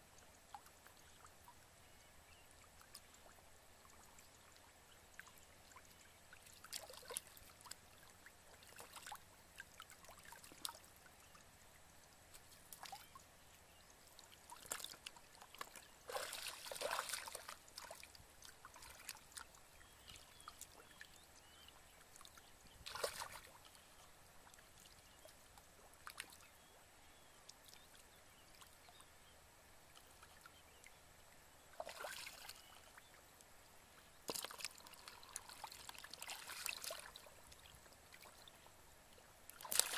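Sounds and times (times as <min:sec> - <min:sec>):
muddy water splashing: 0:14.5 - 0:21.6, 0:22.8 - 0:23.9, 0:34.2 - 0:37.3, 0:39.5 - 0:39.9.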